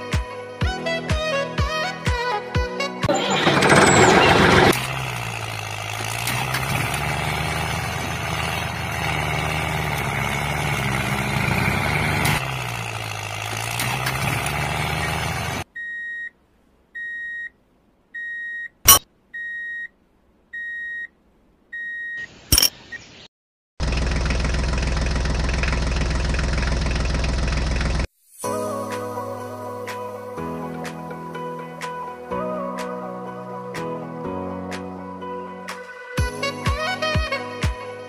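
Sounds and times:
tractor engine running: 3.0 - 15.7, 23.8 - 28.1.

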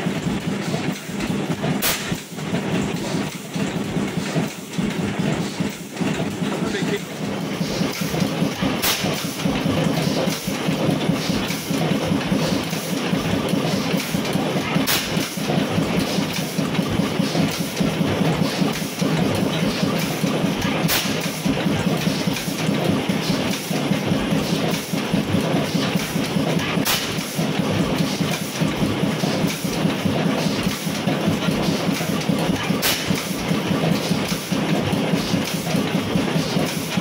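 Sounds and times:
stationary oil engine clattering: 0.0 - 37.0
sharp click: 0.9 - 2.3, 8.8 - 9.4, 26.8 - 27.4, 32.8 - 33.4.

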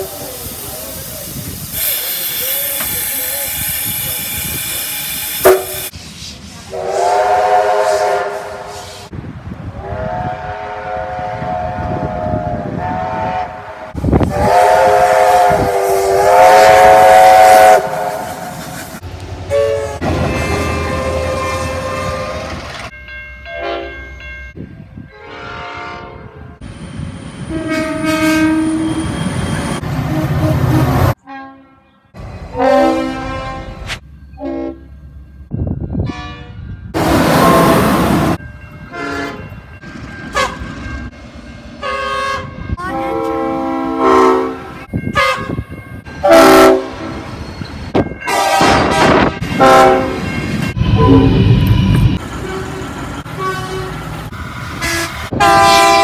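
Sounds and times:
railway wagons rumbling past: 0.0 - 31.3, 32.0 - 56.0
train horns: 5.4 - 5.9, 6.7 - 9.1, 9.7 - 18.6, 19.5 - 22.6, 23.5 - 24.0, 25.1 - 26.6, 27.5 - 29.0, 30.0 - 34.9, 36.0 - 39.5, 40.3 - 40.7, 41.8 - 47.3, 48.2 - 54.1, 54.8 - 56.0.

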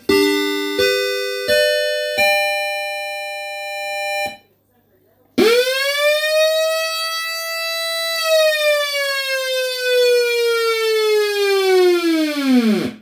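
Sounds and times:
buzzy siren wail through loudspeaker: 5.4 - 13.0.

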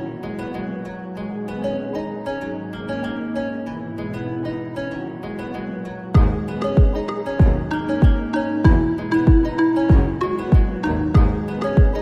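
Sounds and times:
plucked-string melody: 0.0 - 12.0
deep thumping beat: 6.2 - 12.0.

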